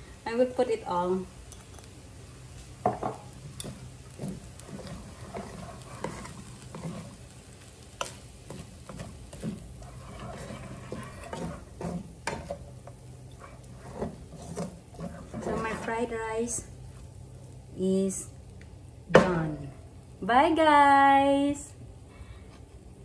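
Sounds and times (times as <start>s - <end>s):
spatula scraping frying pan: 2.9s - 16.2s.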